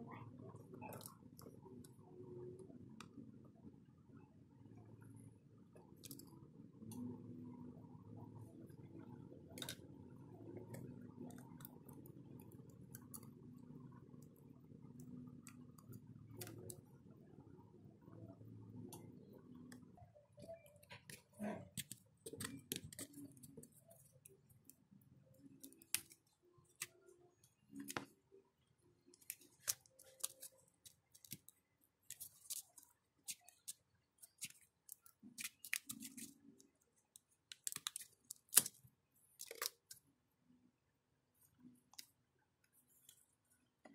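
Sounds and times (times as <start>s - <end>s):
low steady hum: 0.0s - 43.9s
tweezers and tape clicking: 25.4s - 28.0s.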